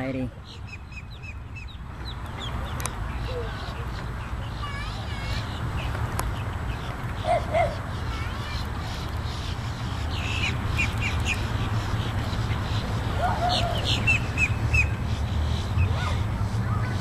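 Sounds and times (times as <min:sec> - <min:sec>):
birds calling high notes: 0:00.0 - 0:17.0
lower bird call: 0:06.7 - 0:16.2.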